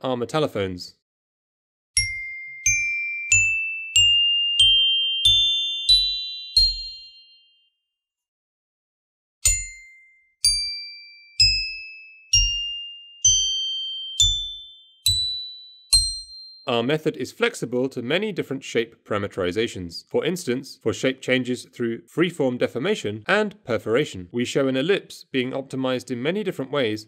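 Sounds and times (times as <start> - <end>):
metallophone ascending scale: 2.0 - 7.4, 9.4 - 16.7
glockenspiel ascending scale: 2.0 - 7.6, 9.4 - 16.7.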